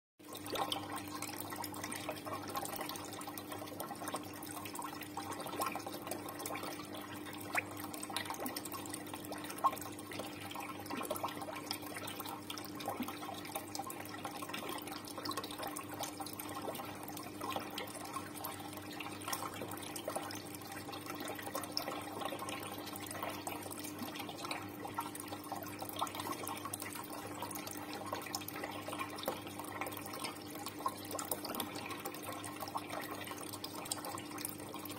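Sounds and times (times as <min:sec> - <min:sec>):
water drips and splashes: 0:00.2 - 0:34.9
water trickling in a pond: 0:00.2 - 0:34.9.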